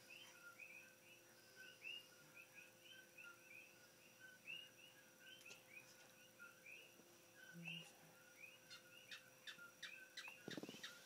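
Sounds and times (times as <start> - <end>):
faint steady hum: 0.0 - 11.0
frogs or insects chirping: 0.0 - 11.0.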